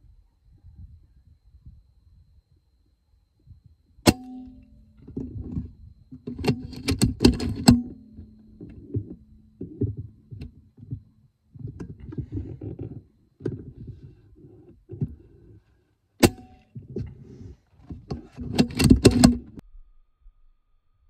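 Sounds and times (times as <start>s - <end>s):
metallic bolt clicks: 6.2s - 8.1s.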